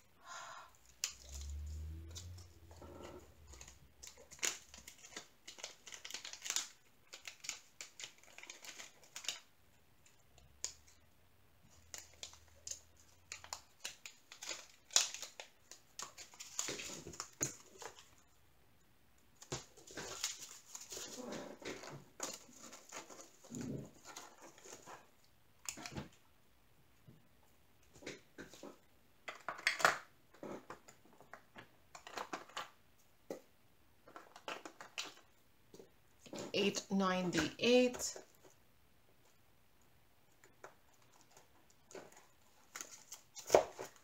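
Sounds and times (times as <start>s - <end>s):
faint low hum: 0.0s - 4.9s
plastic bags crinkling: 0.8s - 9.5s, 11.7s - 18.2s, 19.4s - 26.0s.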